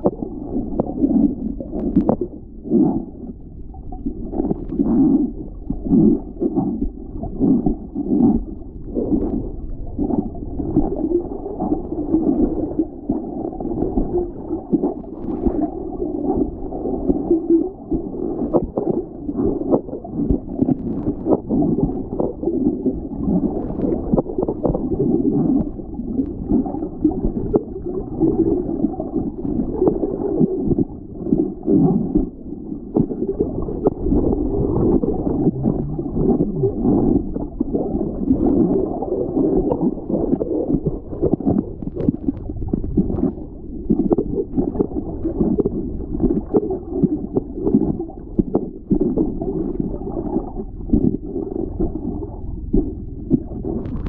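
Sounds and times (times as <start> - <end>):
muffled water sloshing: 0.0 - 54.0.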